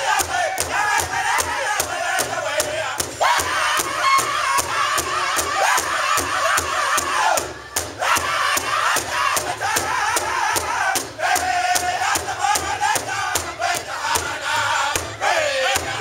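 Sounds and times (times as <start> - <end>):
group singing in high voices: 0.0 - 16.0
large drum steady beat: 0.0 - 16.0.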